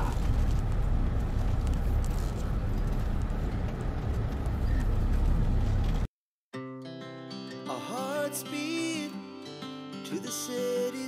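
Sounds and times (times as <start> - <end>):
footsteps on pavement: 0.0 - 6.1
low outdoor rumble: 0.0 - 6.1.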